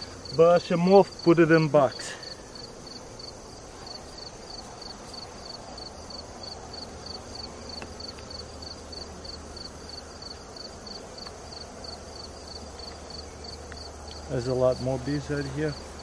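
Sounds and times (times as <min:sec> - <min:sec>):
honey bees humming: 0:00.0 - 0:16.0
insect chirping: 0:00.0 - 0:16.0.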